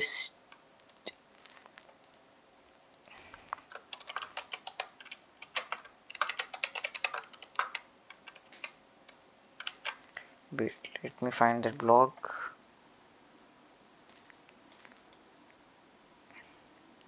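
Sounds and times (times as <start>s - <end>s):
keyboard typing: 3.2s - 10.1s.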